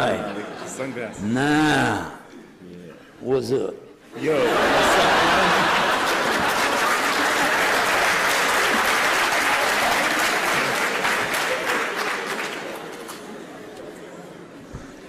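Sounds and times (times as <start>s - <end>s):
audience applauding: 4.7s - 13.3s.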